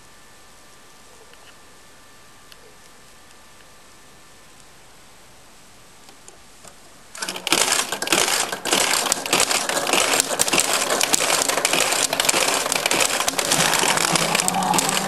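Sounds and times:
steel balls clattering through pins: 7.2 - 15.0.

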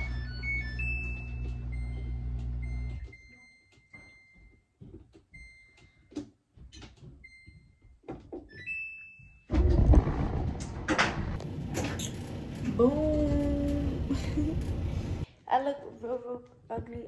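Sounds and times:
steady low hum: 9.5 - 15.3.

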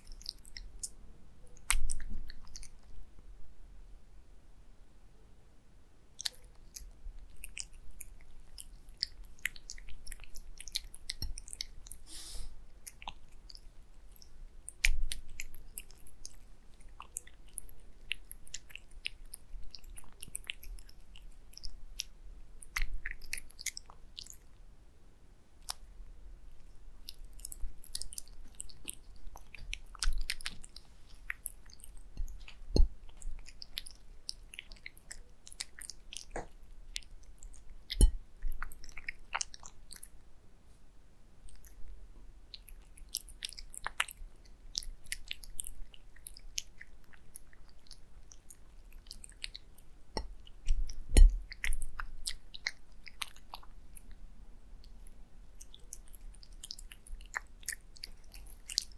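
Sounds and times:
cat eating wet food: 0.0 - 3.0, 6.2 - 24.6, 26.5 - 40.2, 41.4 - 41.8, 42.5 - 54.2, 54.8 - 58.9.

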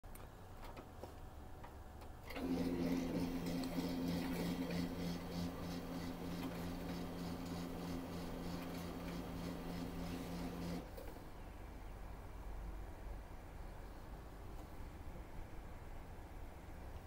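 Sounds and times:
printer motor humming and ticking: 2.3 - 11.1.

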